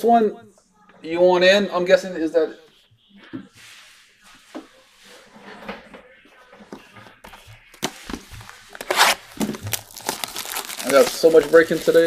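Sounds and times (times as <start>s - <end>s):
plastic wrap rustling: 7.6s - 12.0s.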